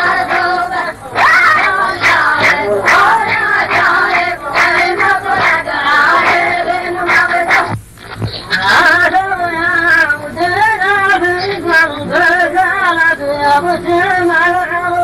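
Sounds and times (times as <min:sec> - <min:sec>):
voices chanting poetry: 0:00.0 - 0:07.8.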